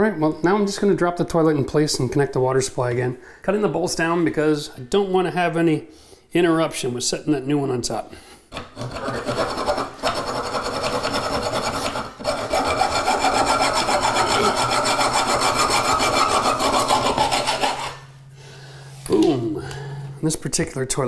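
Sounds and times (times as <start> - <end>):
hacksaw cutting metal: 8.5 - 18.1.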